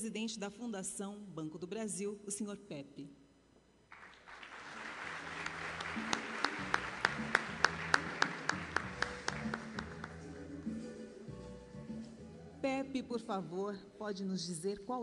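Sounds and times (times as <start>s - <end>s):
audience applauding: 3.9s - 10.3s
stage music with bass: 5.1s - 12.6s.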